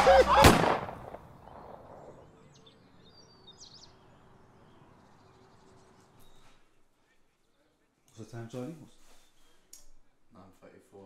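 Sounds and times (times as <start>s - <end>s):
faint outdoor ambience: 0.0s - 11.0s
high bird chirps: 1.3s - 6.6s.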